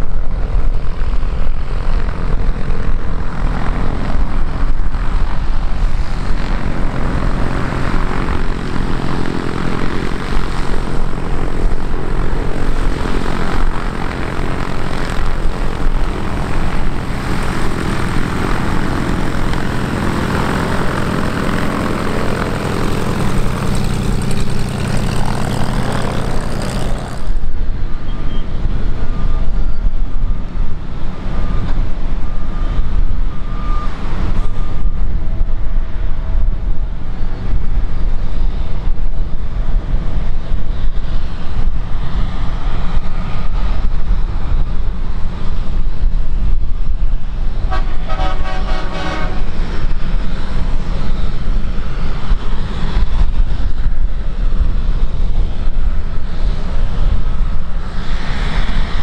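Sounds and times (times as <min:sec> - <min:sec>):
propeller plane engine running: 0:00.0 - 0:59.0
wind rumble on microphone: 0:00.0 - 0:59.0
horn-like tone: 0:47.7 - 0:49.5.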